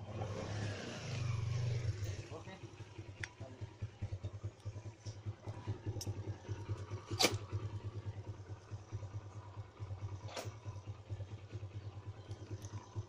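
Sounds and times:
dirt bike engine running: 0:00.0 - 0:13.0.

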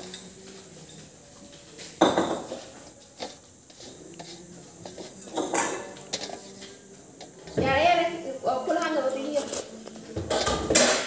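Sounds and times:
metallic clank of dishware: 0:10.3 - 0:11.0.

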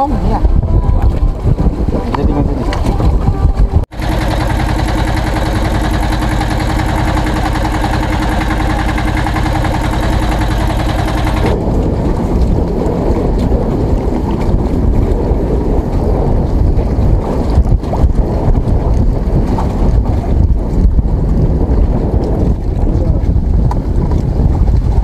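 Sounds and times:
wind blowing on microphone: 0:00.0 - 0:03.9, 0:11.5 - 0:25.0
boat engine running: 0:00.0 - 0:12.9
low rumble: 0:02.7 - 0:21.5.

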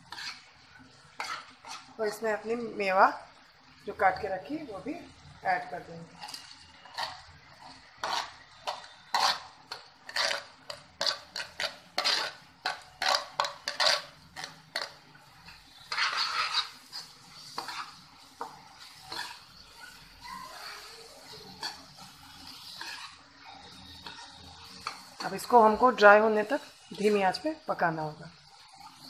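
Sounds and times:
spatula scraping in a pan: 0:00.0 - 0:29.0
spoon scraping plastic plate: 0:06.2 - 0:15.0, 0:15.8 - 0:19.5.

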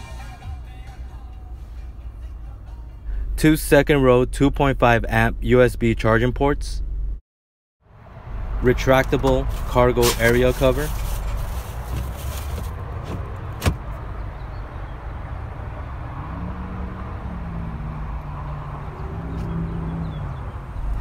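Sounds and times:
steady low rumble: 0:00.0 - 0:07.2
cargo cover sliding out: 0:10.0 - 0:13.8.

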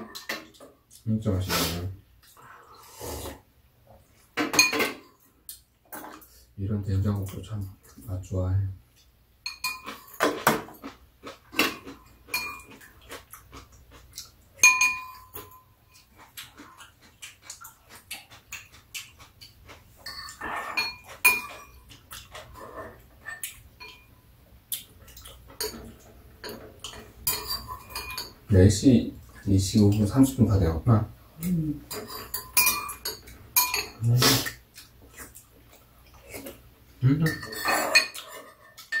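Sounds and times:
eating and slurping: 0:01.4 - 0:03.5, 0:15.9 - 0:23.7, 0:33.9 - 0:36.7
spoons clinking against ceramic bowls: 0:04.4 - 0:05.2, 0:09.4 - 0:10.5, 0:11.6 - 0:12.9, 0:14.6 - 0:16.1, 0:20.0 - 0:21.9, 0:23.2 - 0:24.1, 0:25.6 - 0:28.5, 0:31.9 - 0:34.4, 0:37.2 - 0:39.0.

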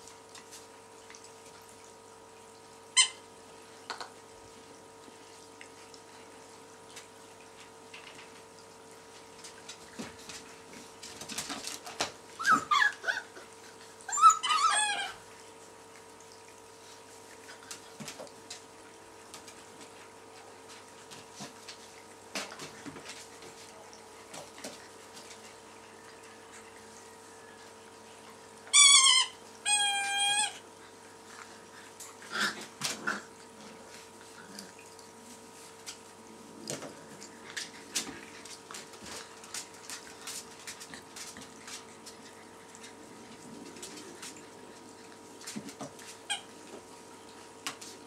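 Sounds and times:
puppies squealing: 0:12.4 - 0:13.4, 0:14.1 - 0:15.2, 0:28.7 - 0:30.6.

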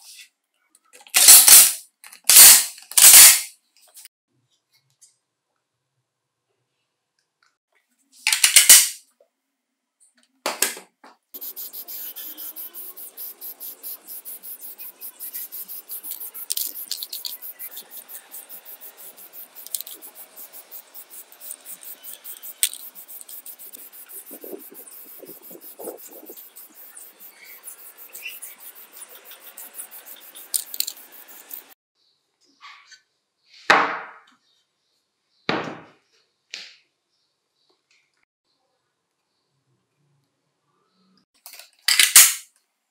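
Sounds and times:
spray paint can hissing: 0:11.4 - 0:31.8.

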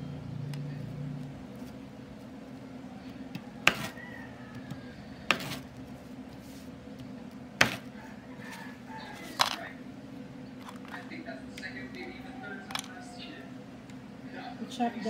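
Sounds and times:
steady low hum: 0:00.0 - 0:15.0
knife hitting cutting board: 0:07.6 - 0:07.8.

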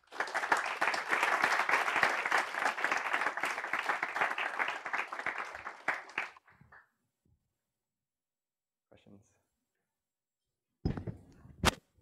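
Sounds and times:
audience applauding: 0:00.0 - 0:06.4.

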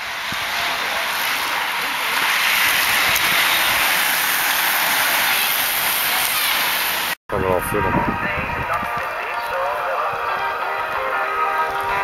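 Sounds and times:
bicycle tyres hissing on asphalt: 0:00.0 - 0:07.2.

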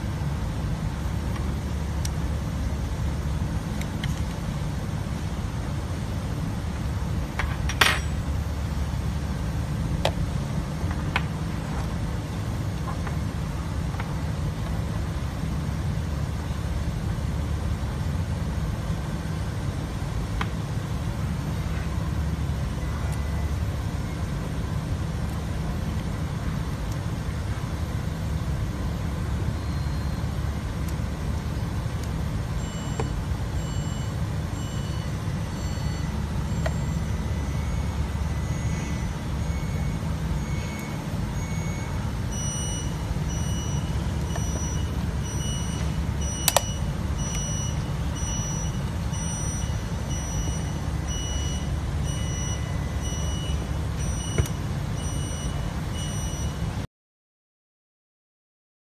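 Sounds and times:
low background rumble: 0:00.0 - 0:56.8
sharp click: 0:46.4 - 0:46.8.

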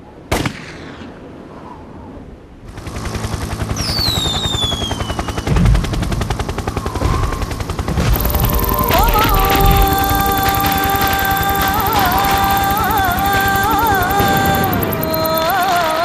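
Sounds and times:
helicopter: 0:02.6 - 0:16.0
synthesizer note: 0:02.7 - 0:16.0
descending whistles: 0:03.8 - 0:05.5.

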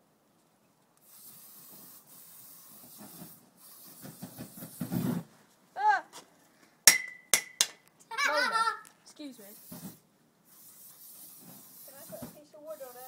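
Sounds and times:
aerosol spray hissing: 0:01.0 - 0:05.0, 0:09.4 - 0:13.0.

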